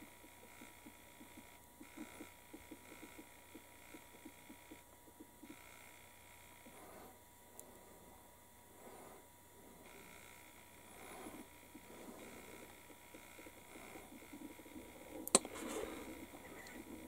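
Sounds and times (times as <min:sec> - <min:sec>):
sharp click: 0:15.2 - 0:15.6.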